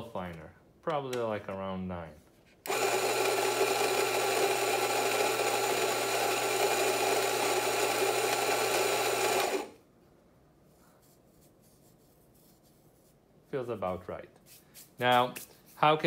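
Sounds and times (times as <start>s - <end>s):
coffee grinder motor humming: 2.7s - 9.8s.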